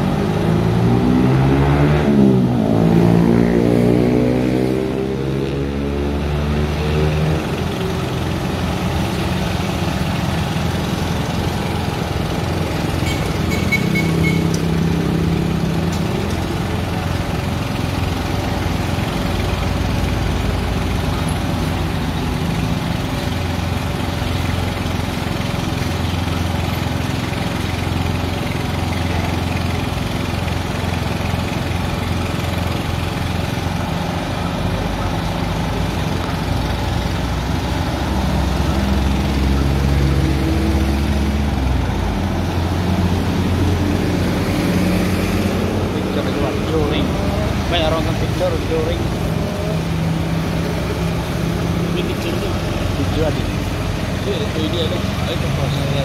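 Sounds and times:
motorcycle passing: 0:00.0 - 0:17.5
diesel truck engine idling: 0:06.2 - 0:56.0.

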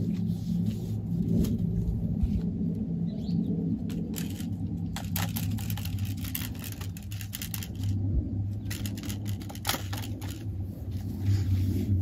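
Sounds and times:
rustling in brush: 0:00.0 - 0:02.4, 0:10.6 - 0:12.0.

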